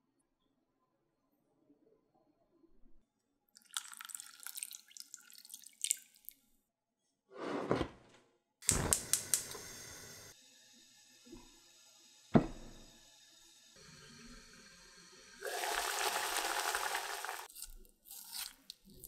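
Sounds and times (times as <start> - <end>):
water splashing into a bowl: 3.6 - 6.4
gas burner igniter ticking: 8.6 - 9.9
gas flame hissing: 8.6 - 10.4.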